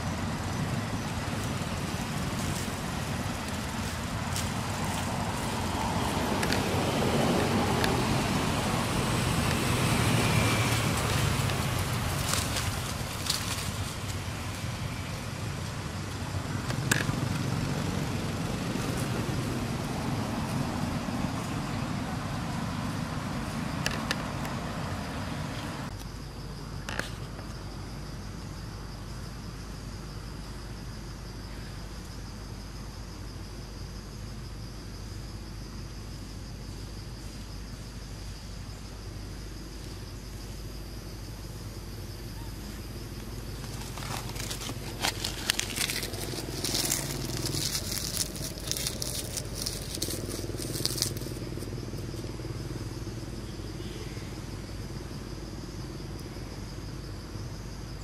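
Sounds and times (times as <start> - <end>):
insect drone: 0.0 - 58.0
crackling and rustling: 1.0 - 8.6, 9.4 - 17.5, 43.2 - 52.3.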